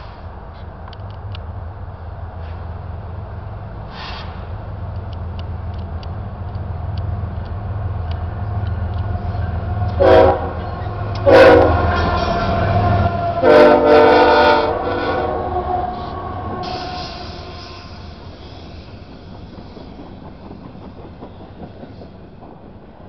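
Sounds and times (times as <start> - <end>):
diesel engines rumbling: 0.0 - 20.8
train rolling noise: 0.0 - 23.0
locomotive air horn blasts: 9.9 - 10.6, 11.2 - 18.0.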